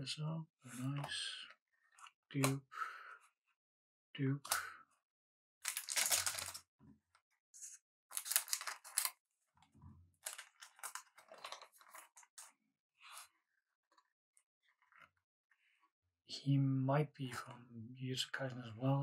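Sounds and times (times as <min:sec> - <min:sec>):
cards clicking and snapping: 0:05.7 - 0:06.6, 0:08.1 - 0:09.1
foil wrapper tearing: 0:05.7 - 0:06.6, 0:08.1 - 0:09.1.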